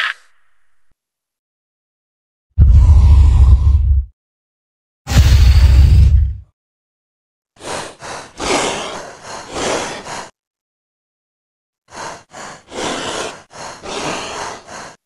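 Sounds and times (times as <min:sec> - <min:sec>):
creature breath-like huffs: 0:07.6 - 0:10.4, 0:11.9 - 0:15.0.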